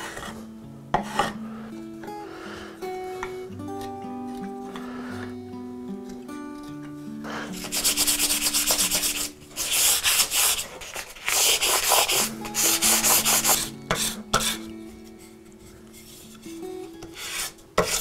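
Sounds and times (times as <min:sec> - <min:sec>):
sharp scrapes of wood on sandpaper: 0:07.4 - 0:14.7, 0:17.1 - 0:18.0
sandpaper rubbing on wood: 0:07.5 - 0:14.6, 0:17.2 - 0:18.0.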